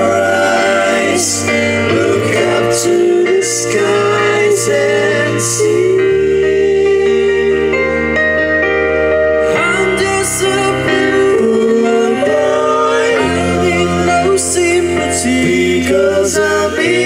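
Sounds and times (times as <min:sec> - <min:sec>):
person singing: 0:09.4 - 0:17.0.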